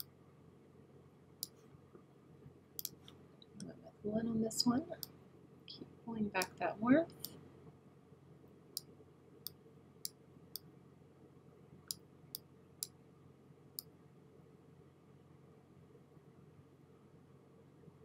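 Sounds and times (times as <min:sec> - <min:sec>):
computer mouse clicks: 0:02.8 - 0:03.2.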